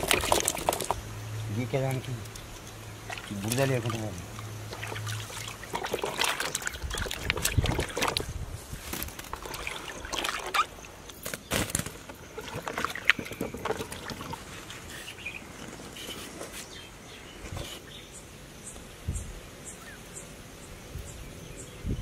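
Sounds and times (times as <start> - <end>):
water splashing and sloshing: 0.0 - 17.8.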